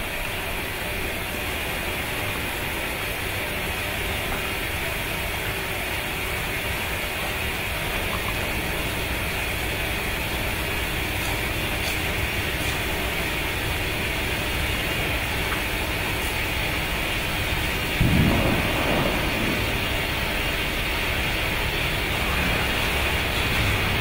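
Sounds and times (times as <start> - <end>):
pyrotechnic flame hissing: 16.0 - 24.0.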